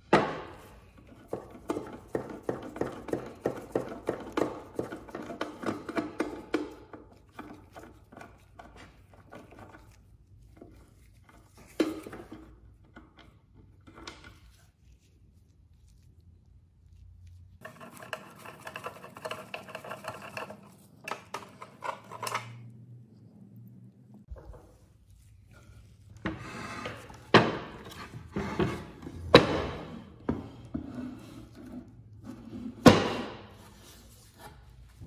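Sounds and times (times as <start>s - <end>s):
screwdriver clicks and scrapes: 17.6s - 22.7s.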